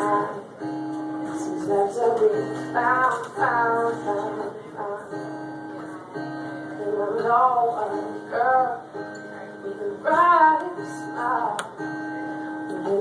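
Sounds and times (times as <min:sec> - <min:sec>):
woman singing: 0:00.0 - 0:11.8, 0:12.4 - 0:13.0
acoustic guitar chords: 0:00.0 - 0:13.0.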